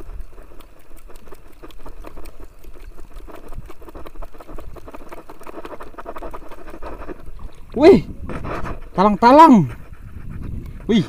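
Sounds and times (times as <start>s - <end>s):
water lapping against hull: 0.0s - 11.0s
low wind rumble: 6.0s - 11.0s.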